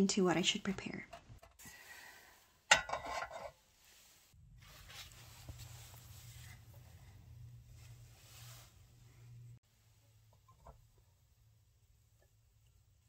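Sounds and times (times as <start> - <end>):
low steady hum: 0.0 - 13.0
faint handling sounds: 3.0 - 10.0.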